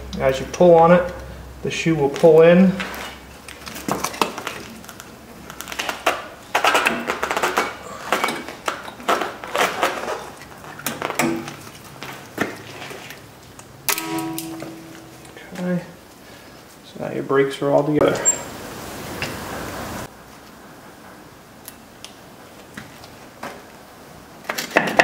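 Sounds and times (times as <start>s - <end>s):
short steady ringing tone: 14.0s - 15.4s.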